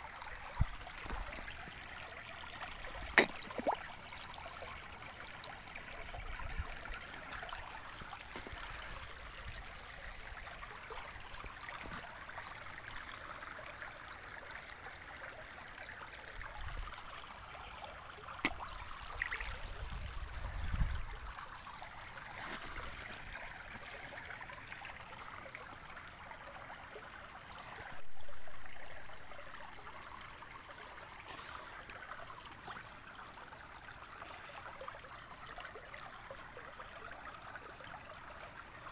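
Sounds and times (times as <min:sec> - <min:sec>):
stream trickling over stones: 0:00.0 - 0:38.9
wind rumbling on microphone: 0:19.5 - 0:21.3.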